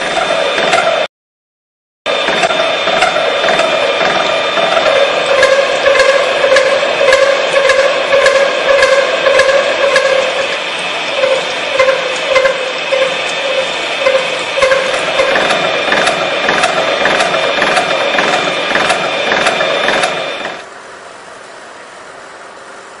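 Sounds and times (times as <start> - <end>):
milling machine whine: 0.0 - 1.1, 2.1 - 20.7.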